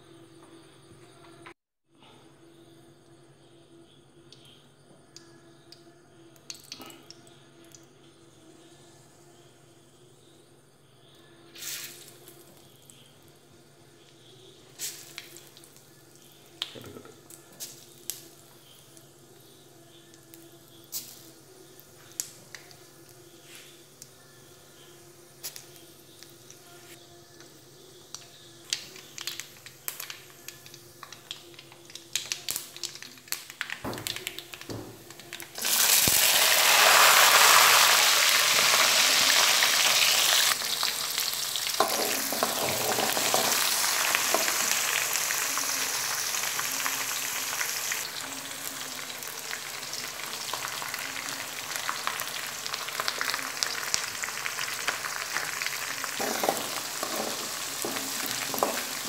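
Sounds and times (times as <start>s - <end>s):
mustard seeds popping in oil: 4.3s - 7.9s, 14.0s - 24.2s, 25.3s - 26.7s, 27.4s - 59.0s
garlic sizzling in oil: 14.6s - 19.7s, 27.6s - 59.0s.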